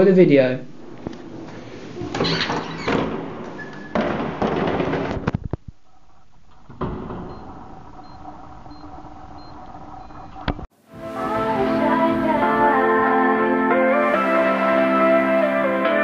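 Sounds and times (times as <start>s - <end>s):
door being pushed open: 2.1s - 5.3s
keypad beeps: 7.3s - 10.4s.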